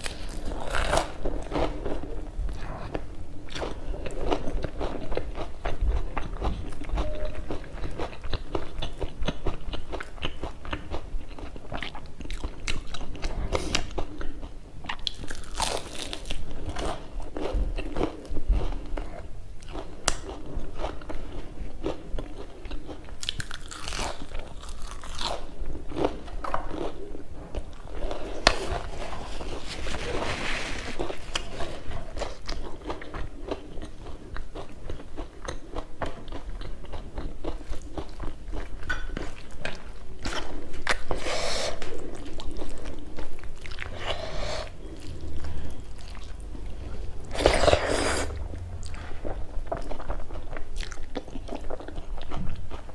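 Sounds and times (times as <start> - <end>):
crunching and chewing fritters: 0.0 - 52.9.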